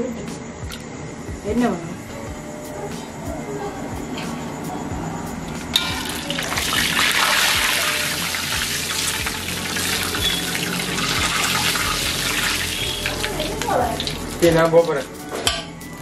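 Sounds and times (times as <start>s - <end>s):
oil sizzling in a wok: 5.5s - 16.0s.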